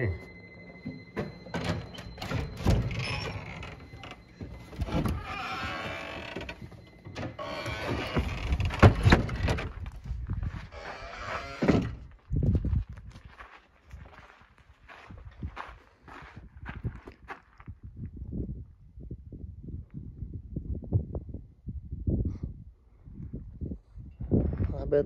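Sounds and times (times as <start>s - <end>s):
footsteps: 0.0s - 17.6s.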